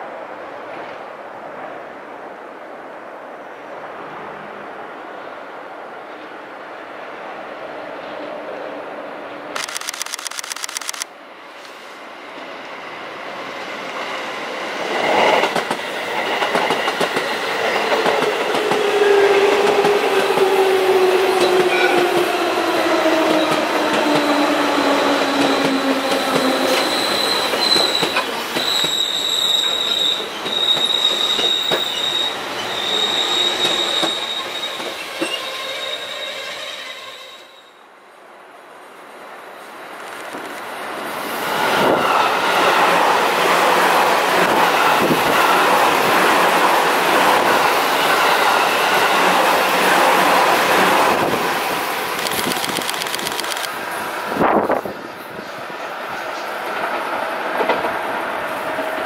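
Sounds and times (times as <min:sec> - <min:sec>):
electric train passing: 0:11.2 - 0:37.8, 0:40.7 - 0:59.0
high wheel squeal: 0:26.2 - 0:37.8.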